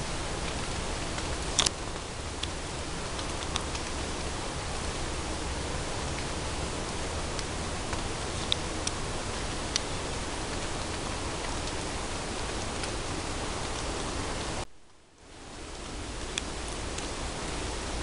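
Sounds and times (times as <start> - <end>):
steady hiss: 0.0 - 18.0
faint ticks: 15.8 - 17.2.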